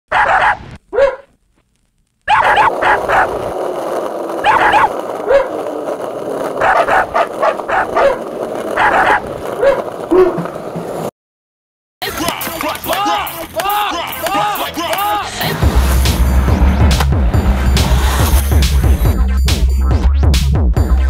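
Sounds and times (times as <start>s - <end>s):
dog barking: 0.1s - 1.3s, 2.3s - 3.5s, 4.4s - 5.6s, 6.6s - 10.4s.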